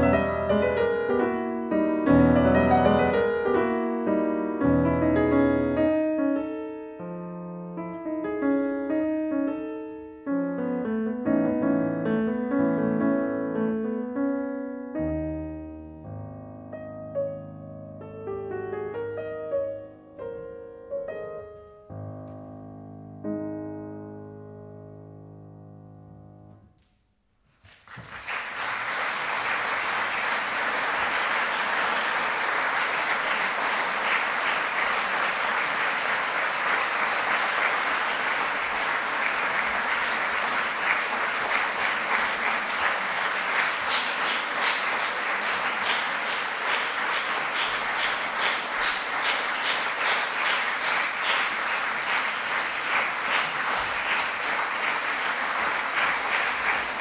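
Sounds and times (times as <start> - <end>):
audience applauding: 0.0 - 1.0, 2.5 - 3.7, 27.6 - 57.0
piano note: 0.0 - 26.8.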